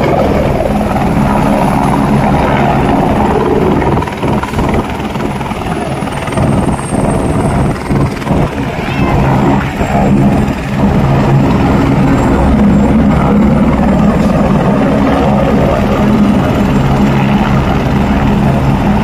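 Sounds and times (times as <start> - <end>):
helicopter idling: 0.0 - 19.0.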